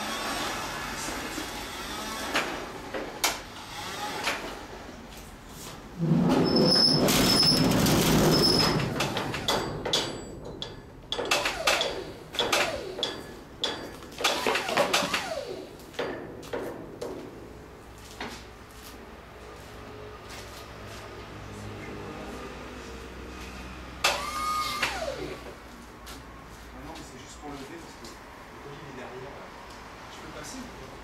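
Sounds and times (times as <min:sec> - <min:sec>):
sharp metal clanks and knocks: 0:07.1 - 0:15.3, 0:15.9 - 0:17.3.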